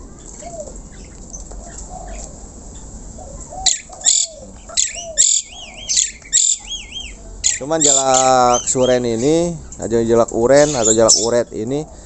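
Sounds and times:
starling screeching and whistling: 3.6s - 9.4s, 10.5s - 11.4s.

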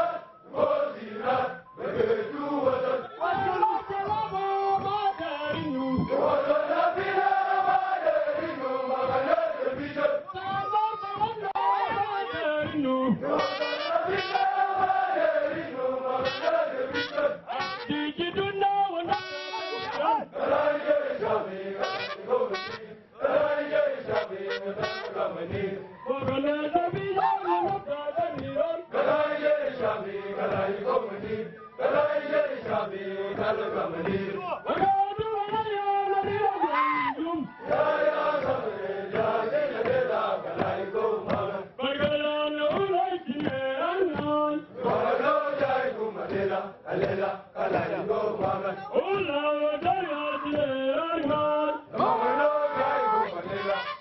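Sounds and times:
group of men chanting: 0.0s - 10.6s, 11.3s - 18.0s, 19.0s - 34.9s, 35.5s - 42.1s, 42.7s - 54.0s.

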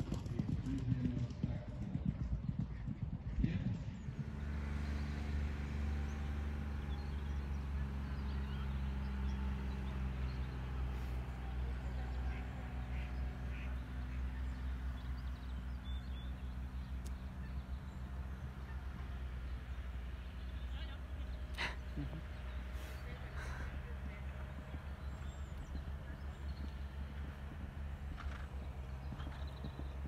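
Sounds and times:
ducks quacking: 11.9s - 15.0s, 17.2s - 19.7s.

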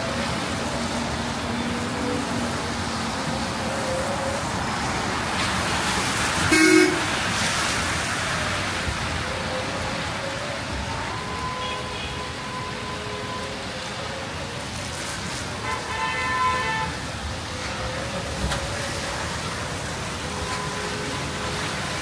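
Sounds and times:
traffic on wet street: 0.0s - 22.0s
short vehicle horn toot: 6.5s - 7.0s.

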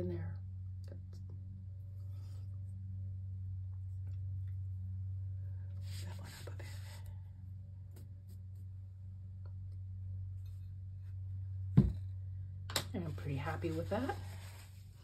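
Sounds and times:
steady low hum: 0.0s - 15.0s
paper rustling scrape: 13.5s - 15.0s.

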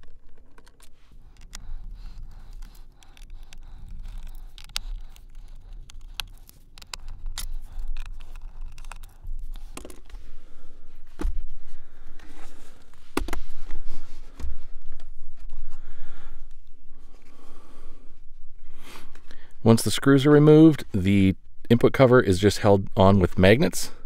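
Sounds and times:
screwdriver clicking and scraping: 0.0s - 10.2s.

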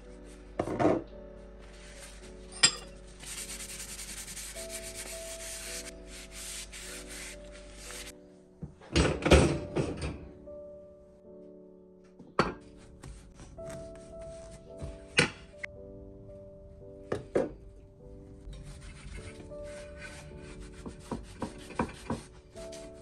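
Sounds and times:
soft background music: 0.0s - 23.0s
paper towel rubbing metal: 3.1s - 8.1s, 18.5s - 23.0s.

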